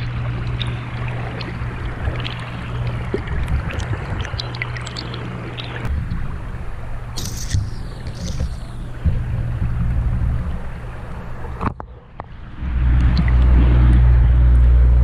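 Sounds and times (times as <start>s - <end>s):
stream flowing underwater: 0.0s - 15.0s
small ticks and pops: 7.2s - 8.8s.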